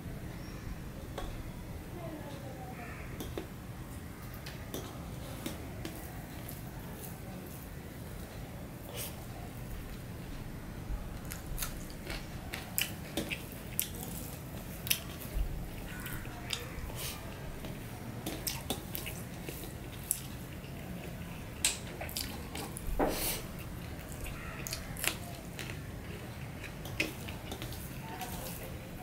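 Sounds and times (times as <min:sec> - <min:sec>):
chewing: 0:11.2 - 0:29.0.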